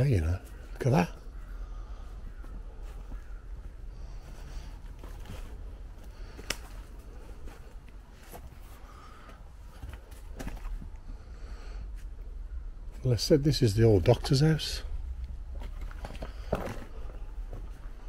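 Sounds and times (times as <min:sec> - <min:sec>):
footsteps crunching on leaves and rubble: 0:02.4 - 0:10.8.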